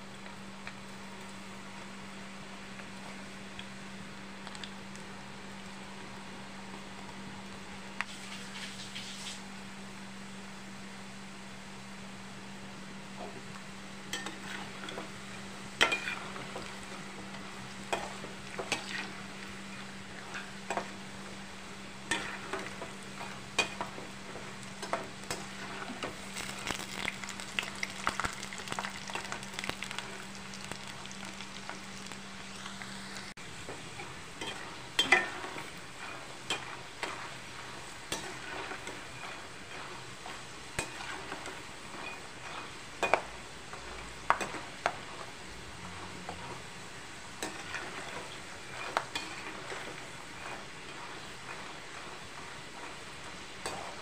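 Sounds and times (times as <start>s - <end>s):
food deep-frying in hot oil: 0.0s - 54.0s
metal spoon scraping a pan: 14.2s - 16.7s, 17.9s - 20.9s, 22.1s - 26.0s, 34.0s - 45.2s, 47.4s - 54.0s.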